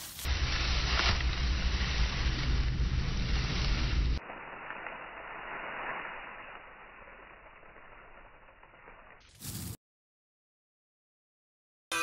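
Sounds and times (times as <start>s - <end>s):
faint rustle: 3.2s - 9.8s.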